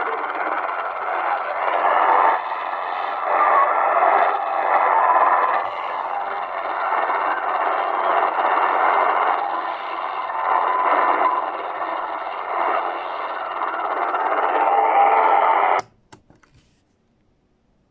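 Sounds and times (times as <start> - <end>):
harsh distorted jamming signal: 0.0 - 15.8.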